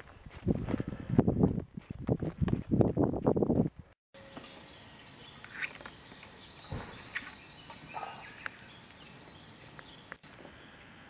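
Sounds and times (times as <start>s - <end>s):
twigs crackling in fire: 5.4s - 11.0s
sharp pops from fire: 6.6s - 9.1s.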